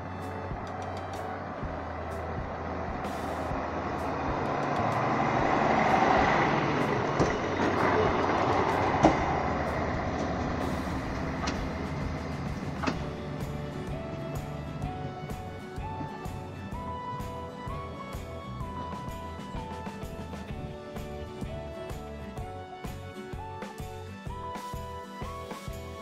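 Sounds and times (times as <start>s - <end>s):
diesel railcar passing: 0.0s - 26.0s
wheels rolling on rails: 0.6s - 21.2s.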